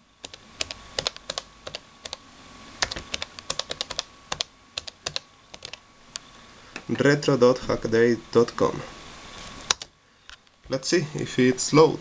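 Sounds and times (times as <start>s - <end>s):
laptop keyboard typing: 0.2s - 2.2s, 2.8s - 5.8s, 9.7s - 9.9s.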